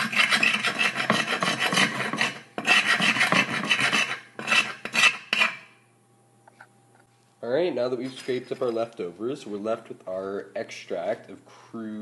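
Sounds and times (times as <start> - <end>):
metal spoon scraping a dish: 0.0 - 5.6.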